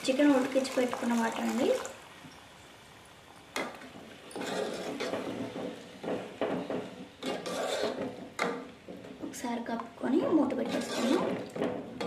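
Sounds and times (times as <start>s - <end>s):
metal ladle scraping a pot: 4.3s - 9.0s, 10.1s - 12.0s.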